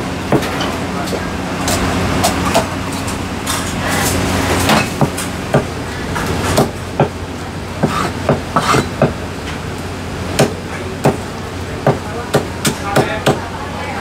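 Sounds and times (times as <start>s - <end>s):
steady low hum: 0.0s - 14.0s
cleaver chopping on wooden block: 10.4s - 11.2s.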